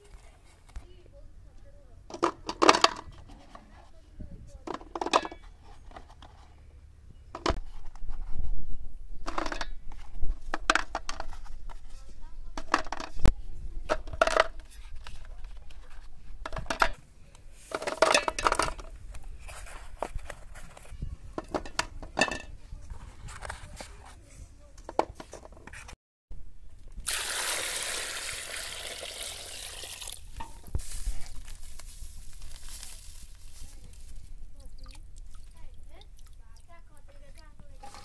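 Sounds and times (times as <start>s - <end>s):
water pouring into a pot: 27.0s - 30.3s.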